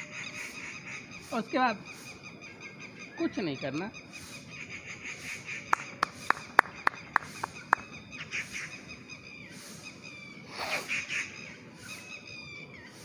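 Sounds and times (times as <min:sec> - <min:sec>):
faint bird calls: 0:00.0 - 0:13.0.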